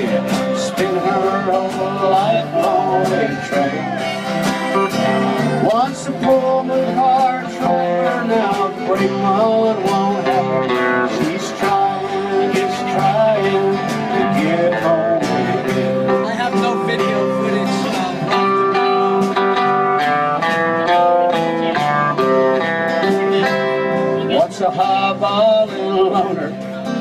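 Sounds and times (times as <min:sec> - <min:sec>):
strummed acoustic guitars: 0:00.0 - 0:27.0
melody line: 0:02.6 - 0:07.4.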